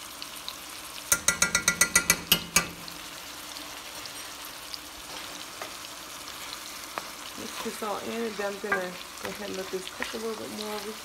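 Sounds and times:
food sizzling in hot oil: 0:00.0 - 0:11.0
metal spoon tapping: 0:01.1 - 0:03.0.

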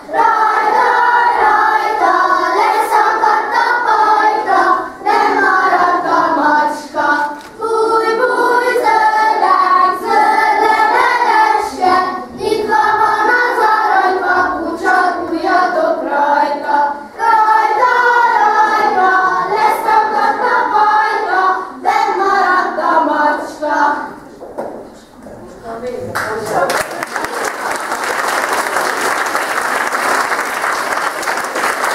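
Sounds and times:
children singing a folk song: 0:00.0 - 0:24.4.

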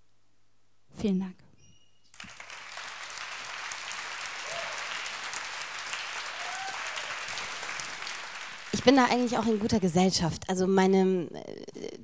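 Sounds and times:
audience applause: 0:02.2 - 0:10.2.

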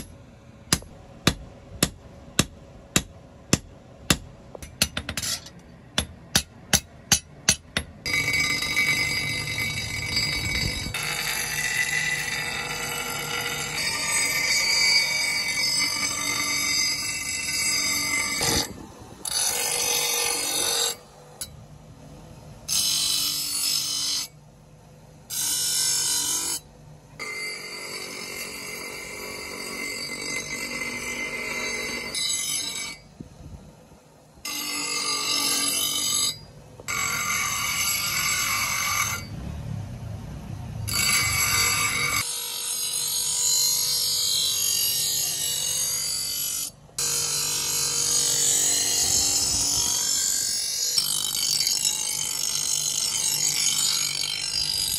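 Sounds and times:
bench grinder grinding blade: 0:08.0 - 0:21.5, 0:22.7 - 0:24.3, 0:27.2 - 0:33.0, 0:34.5 - 0:39.3, 0:40.9 - 0:54.9
grinding wheel spinning: 0:08.1 - 0:19.4.

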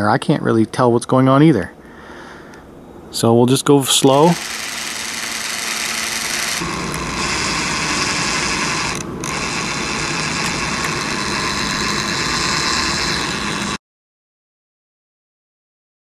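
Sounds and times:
cordless drill motor whine: 0:04.1 - 0:13.8.

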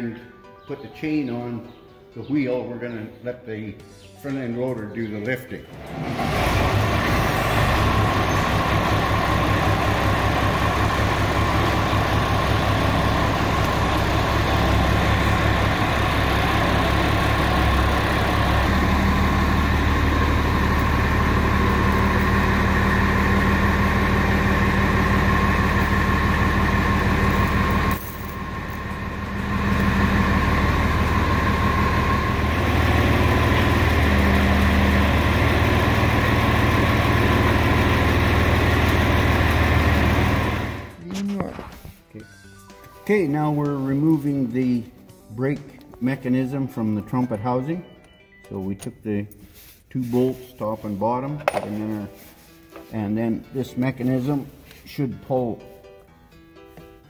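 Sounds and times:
tractor engine running: 0:05.8 - 0:41.0.

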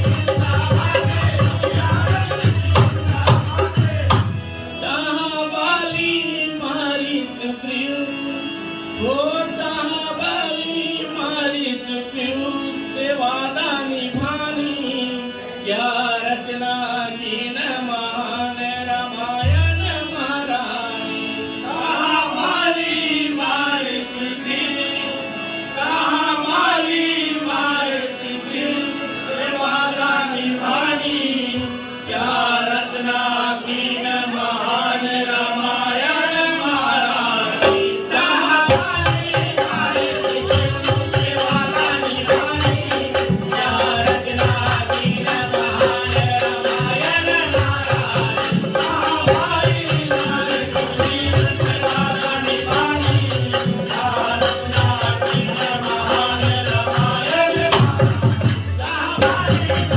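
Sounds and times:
dholak drumming: 0:00.0 - 0:05.0, 0:37.6 - 0:59.9
harmonium drone: 0:00.0 - 0:59.9
men singing: 0:00.0 - 0:59.9.

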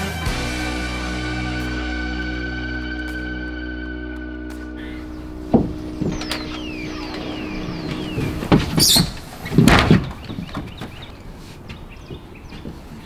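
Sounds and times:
high squeaks: 0:04.8 - 0:11.2
heavy clunk: 0:05.4 - 0:11.1
wooden frame knocking and scraping: 0:05.5 - 0:06.4, 0:07.9 - 0:12.8.

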